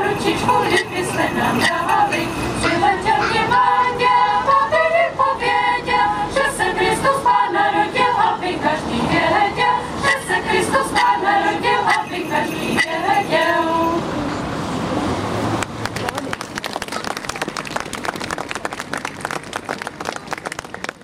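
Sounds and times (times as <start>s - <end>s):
choir singing a cappella: 0.0s - 14.2s.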